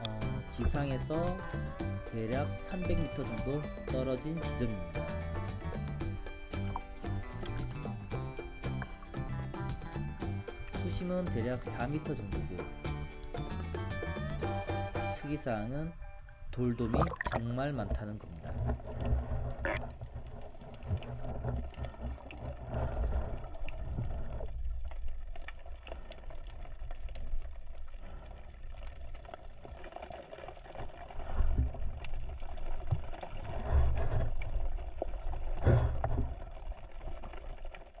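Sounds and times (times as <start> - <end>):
muffled underwater rumble: 0.0 - 13.3, 15.4 - 38.0
soft underwater clicks and knocks: 2.9 - 11.0, 17.0 - 38.0.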